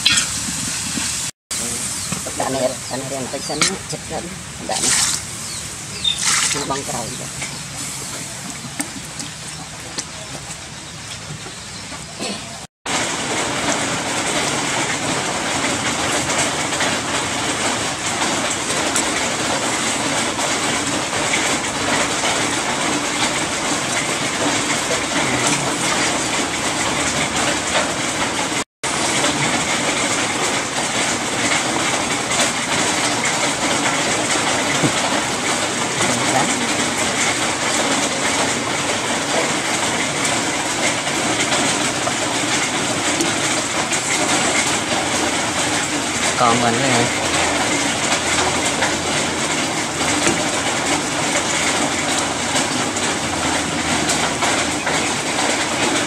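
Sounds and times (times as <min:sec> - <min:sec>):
loud hissing crackle: 0:00.0 - 0:03.6.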